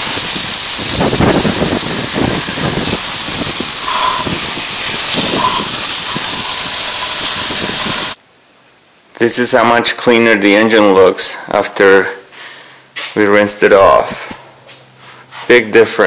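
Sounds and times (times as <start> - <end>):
hose nozzle spray hissing: 0.0 - 8.2.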